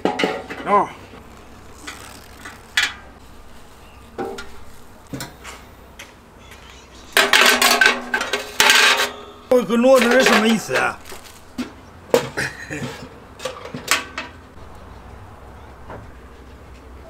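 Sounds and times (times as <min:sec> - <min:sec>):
wire grate clattering: 0:07.1 - 0:11.3
metal grill knocking and rattling: 0:07.2 - 0:09.2.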